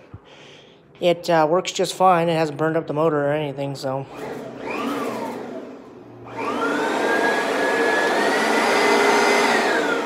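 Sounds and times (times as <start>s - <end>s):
vacuum cleaner motor whine: 4.1s - 10.0s.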